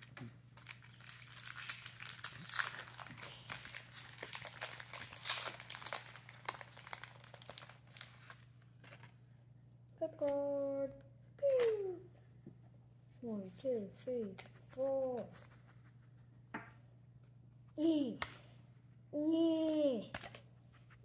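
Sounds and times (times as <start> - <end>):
foil wrapper crinkling and tearing: 0.0 - 9.2.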